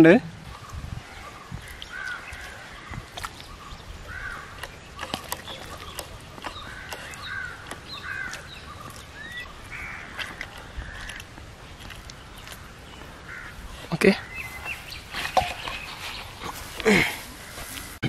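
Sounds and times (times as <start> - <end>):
bird calling: 0.4 - 18.0.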